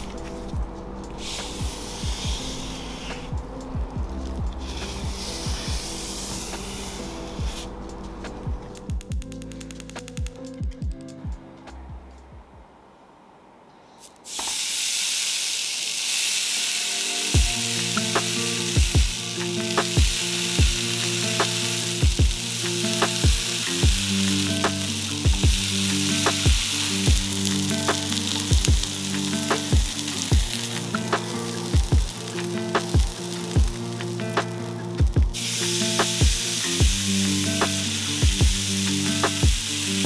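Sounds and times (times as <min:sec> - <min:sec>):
background music with steady beat: 0:00.0 - 0:12.7, 0:16.8 - 0:40.0
steak sizzling on a grill pan: 0:14.3 - 0:40.0.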